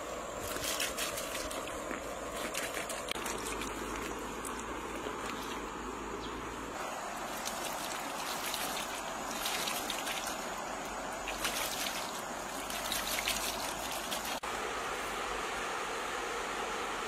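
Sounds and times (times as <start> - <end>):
water splashing on leaves: 0.0 - 5.9, 6.8 - 14.5
water pouring from bamboo tube: 0.4 - 5.7, 7.0 - 14.4.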